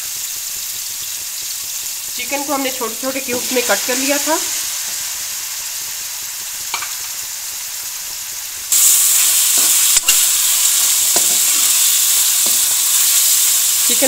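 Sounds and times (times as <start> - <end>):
chicken sizzling in a pan: 0.0 - 14.0
steel spoon scraping pan: 9.2 - 14.0.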